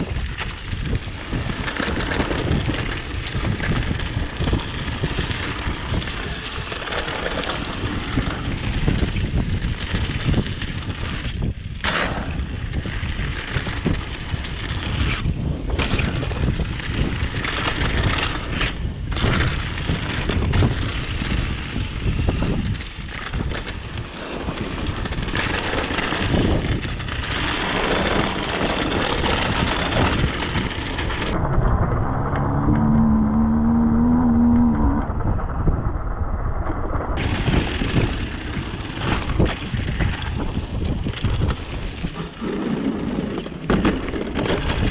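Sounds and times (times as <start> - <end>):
bike clattering: 0.0 - 31.4, 37.2 - 44.9
tyres rumbling over ground: 0.0 - 36.1, 37.2 - 44.9
wind rushing over microphone: 0.0 - 44.9
low hum: 27.9 - 40.3.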